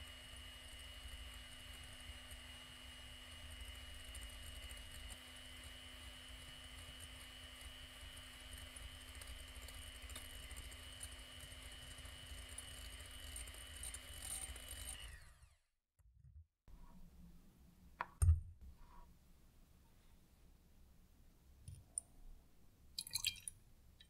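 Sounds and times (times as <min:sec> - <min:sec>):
electric hand mixer running: 0:00.0 - 0:15.6.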